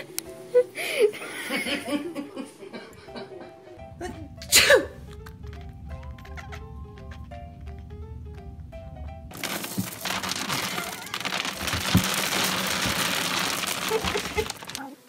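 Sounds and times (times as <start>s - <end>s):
light music: 0.0s - 12.0s
dog digging in dry pellets: 9.3s - 15.0s.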